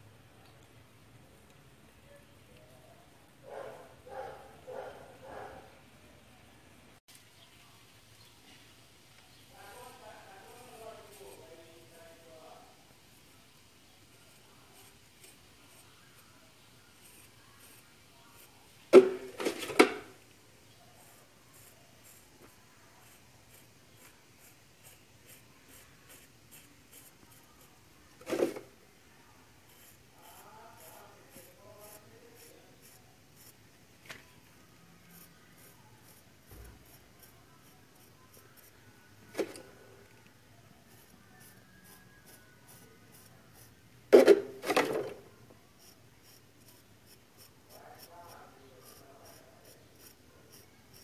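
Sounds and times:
knife scraping mortar: 48.8s - 51.0s.

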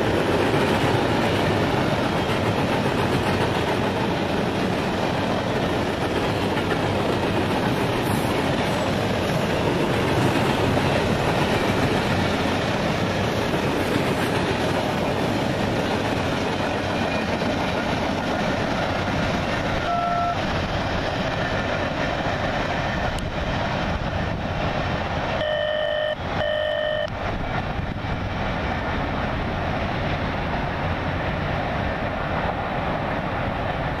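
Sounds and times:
freight train wheels on rails: 0.0s - 34.0s
brief tone: 19.8s - 20.4s, 25.4s - 27.1s
short beeps: 19.8s - 20.4s, 25.4s - 27.1s.

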